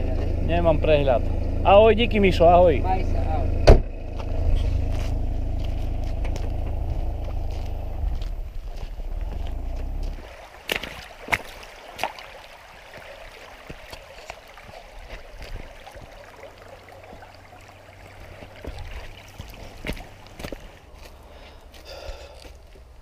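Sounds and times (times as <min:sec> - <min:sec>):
low rumble: 0:00.0 - 0:10.3
stream running over stones: 0:00.0 - 0:23.0.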